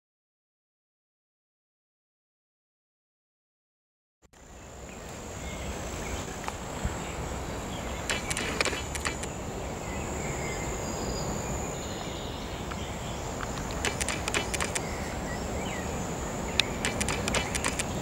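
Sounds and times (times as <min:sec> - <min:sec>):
high insect-like whine: 0:04.4 - 0:18.0.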